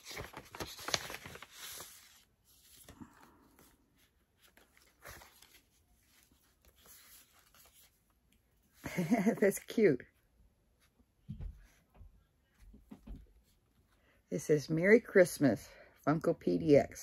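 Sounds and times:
paper rustling and scraping: 0.0 - 8.1.

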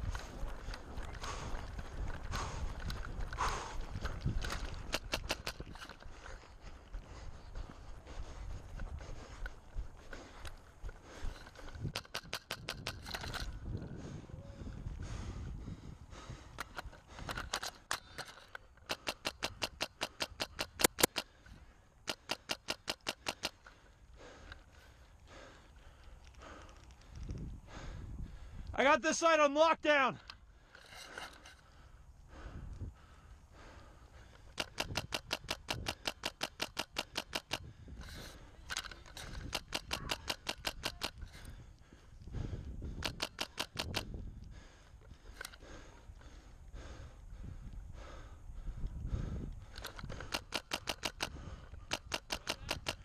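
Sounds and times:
airsoft rifle shots: 18.9 - 21.3, 34.6 - 37.6, 39.4 - 41.2, 43.0 - 44.0, 50.1 - 53.0.

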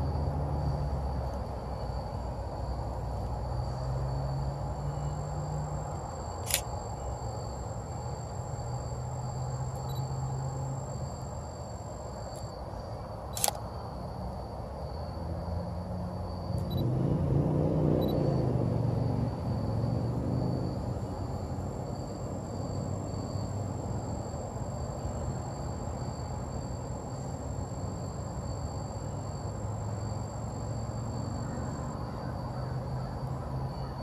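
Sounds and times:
camera shutter clicks: 6.4 - 6.7, 13.4 - 13.6
steady low rumble: 16.2 - 25.3.

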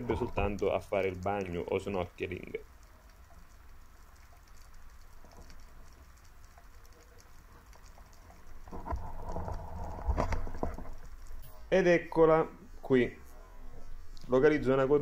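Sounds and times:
low rumble of water: 0.0 - 11.4
underwater crackling and clicking: 0.0 - 12.2
steady hum: 0.0 - 15.0.

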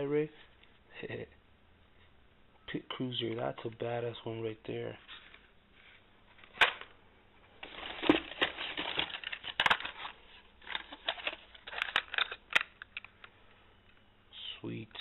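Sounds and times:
plastic blister packs crinkling: 7.6 - 13.2.

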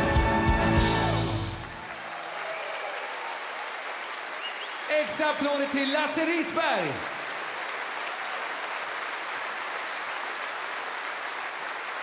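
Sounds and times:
large audience applauding: 0.0 - 12.0.

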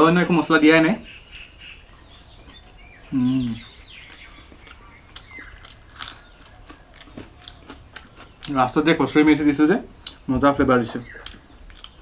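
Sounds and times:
faint high chirps: 1.0 - 7.9
person humming mmm: 3.1 - 3.6
chewing and mouth smacks: 4.0 - 8.6, 11.2 - 12.0.

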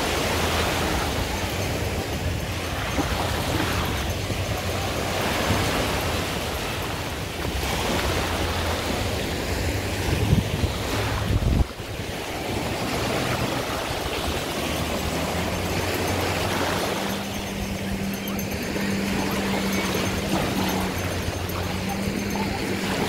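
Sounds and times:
sea surf washing in: 0.0 - 23.0
wind buffeting microphone: 0.0 - 23.0
low hum: 12.2 - 23.0.

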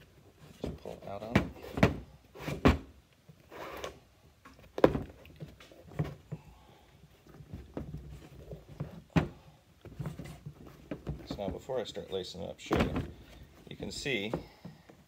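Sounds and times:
lace rustling and scraping: 3.4 - 5.9.

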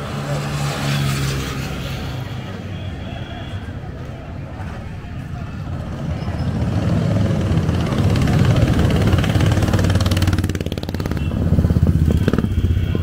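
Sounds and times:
motorcycles riding past: 0.0 - 13.0.

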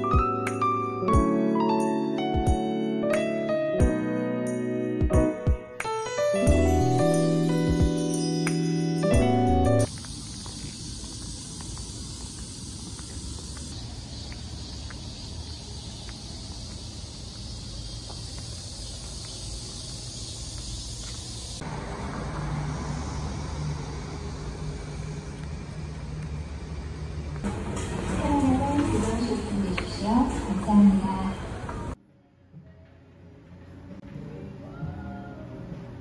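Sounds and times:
passing traffic hum: 9.6 - 32.0
low engine hum: 18.0 - 32.0.

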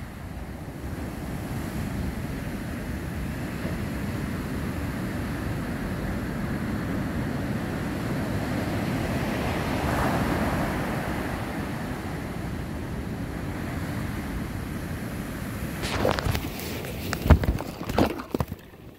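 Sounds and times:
wind rumbling on microphone: 0.0 - 18.9
surf breaking on beach: 7.7 - 18.9.

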